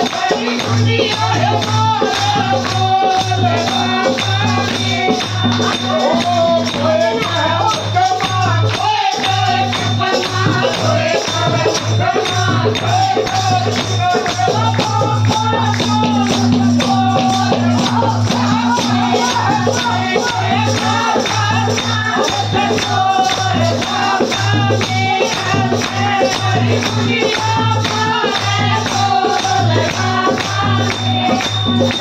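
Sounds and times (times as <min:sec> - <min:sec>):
devotional song with singing voice: 0:00.0 - 0:32.0.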